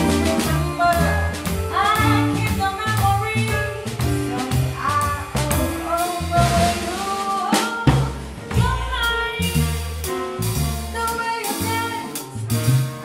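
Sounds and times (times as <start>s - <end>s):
woman singing with vibrato: 0.0s - 3.7s, 4.3s - 9.6s
drum kit with cymbal hits: 0.0s - 13.0s.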